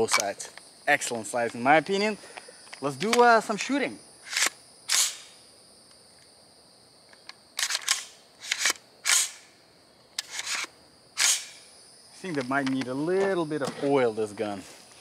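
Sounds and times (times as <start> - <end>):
gun action metallic clicks: 7.1 - 9.5.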